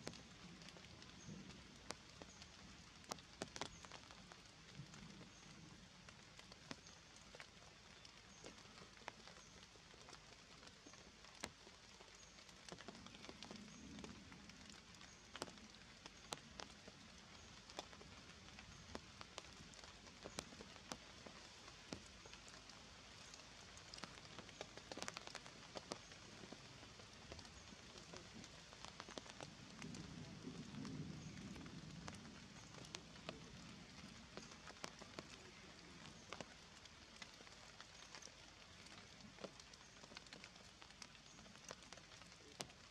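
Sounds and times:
water drops ticking on wet leaves: 0.0s - 42.9s.

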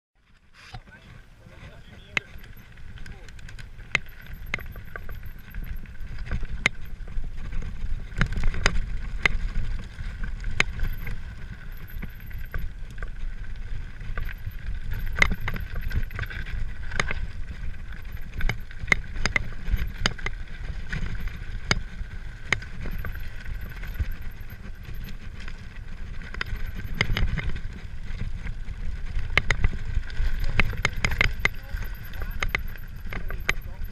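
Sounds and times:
bike clicks and rattles: 0.2s - 33.9s
low rumble of wind: 0.2s - 33.9s
tyres crunching over stones: 0.3s - 33.9s.

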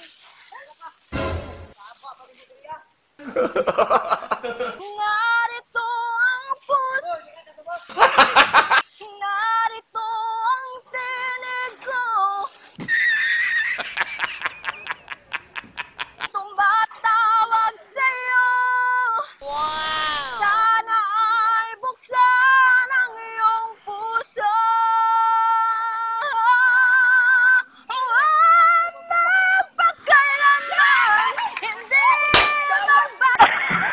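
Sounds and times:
woman singing a ballad: 9.0s - 12.5s, 16.3s - 33.4s.

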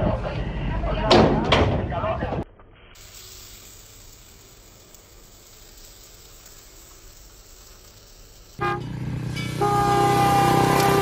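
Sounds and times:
pump sprayer hissing: 3.0s - 11.0s
loud train horn: 8.6s - 11.0s.

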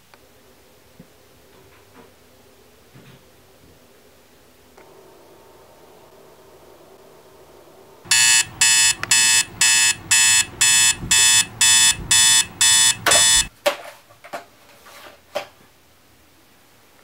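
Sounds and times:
digital alarm clock beeping: 8.1s - 13.5s.

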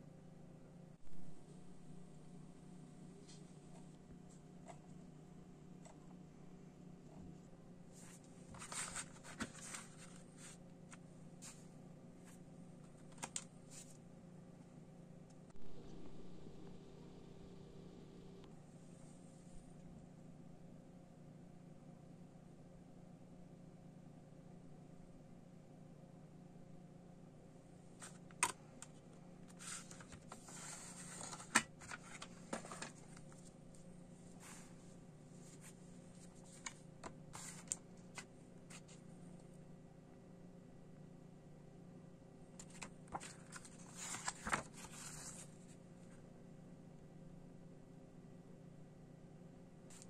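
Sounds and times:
paper rustling: 7.9s - 14.0s, 29.5s - 33.5s, 34.3s - 34.8s, 35.4s - 39.0s, 42.6s - 45.8s
plastic case rustling and scraping: 8.0s - 10.6s, 29.5s - 33.5s.

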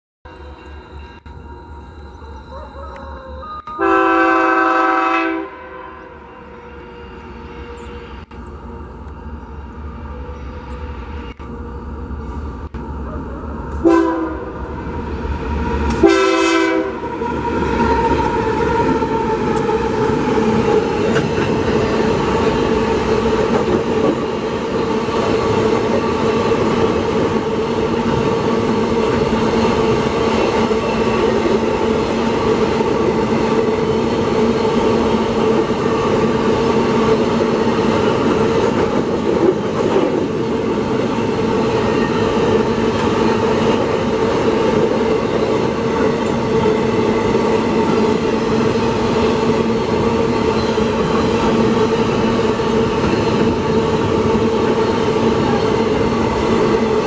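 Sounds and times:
continuous ringing tone: 0.3s - 3.8s
train wheels rumbling on rail: 0.3s - 57.0s.

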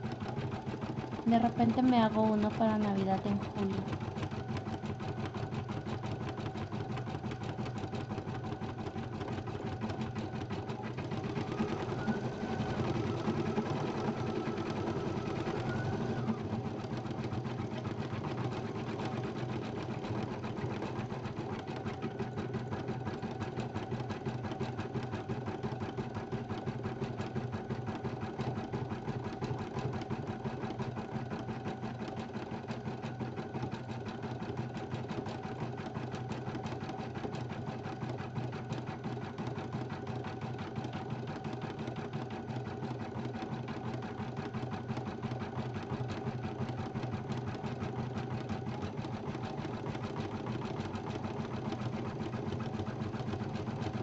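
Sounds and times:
embroidery machine stitching: 0.0s - 54.0s.

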